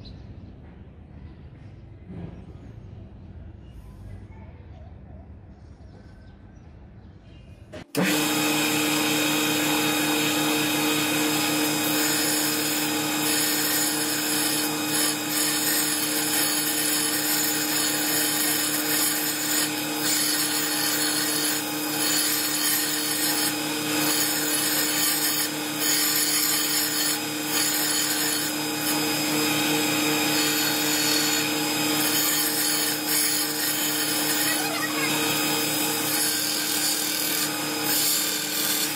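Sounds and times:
belt sander grinding metal: 7.9 - 38.9.

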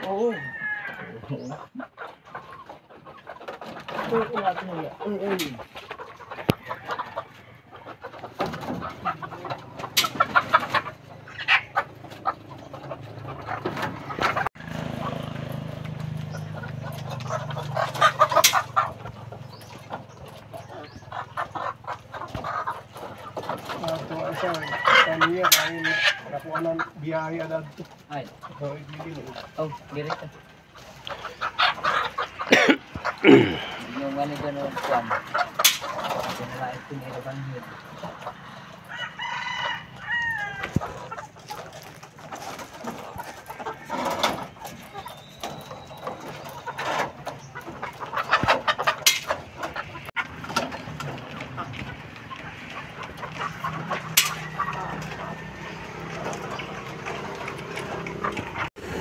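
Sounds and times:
hens clucking and squawking: 0.0 - 59.0
knocks from cage wire: 48.4 - 49.4.

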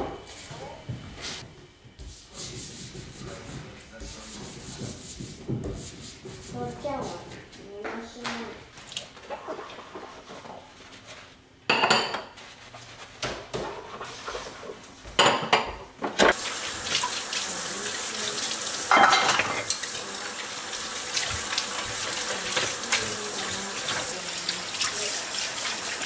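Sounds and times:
ceramic dishes clinking: 11.7 - 12.3, 18.9 - 19.7
tap water running: 16.2 - 26.0.

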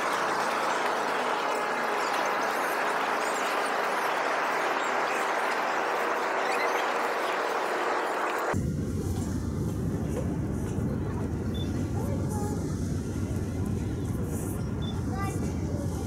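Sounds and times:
sped-up birdsong chirps: 0.2 - 8.3.

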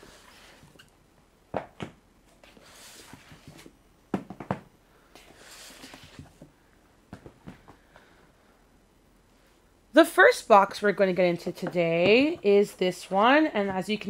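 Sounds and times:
boxes knocking on wooden desk: 4.1 - 4.7.

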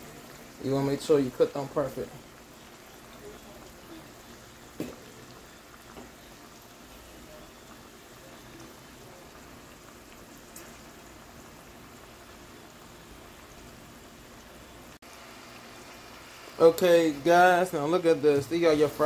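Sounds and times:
fries sizzling in oil: 0.0 - 19.0.

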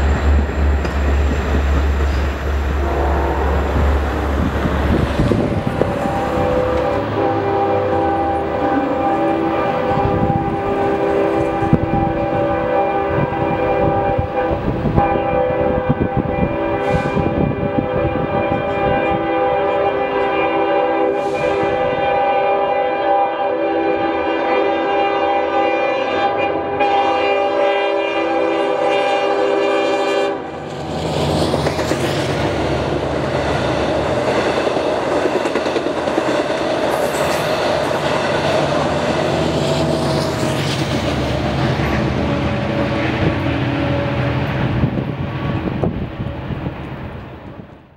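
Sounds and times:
train rumbling past: 0.0 - 47.9
locomotive air horn: 2.7 - 4.2, 5.3 - 30.6.

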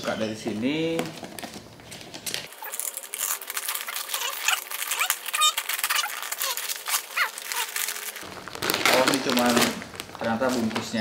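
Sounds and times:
paper wrapping crinkling: 0.8 - 11.0
knife slitting packing tape: 2.5 - 8.0.

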